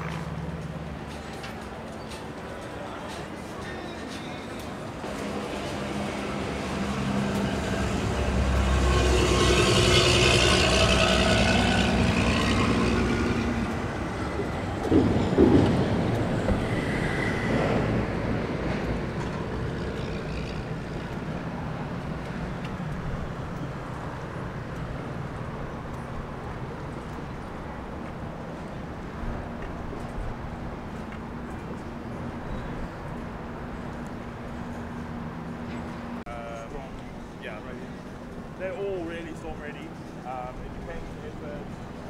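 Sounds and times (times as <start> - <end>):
engine passing by: 4.6 - 42.0.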